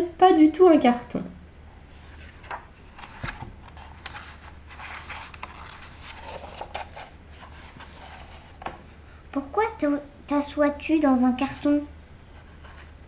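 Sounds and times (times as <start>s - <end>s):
faint low hum: 0.0s - 13.0s
book pages turning: 1.9s - 8.8s, 12.4s - 13.0s.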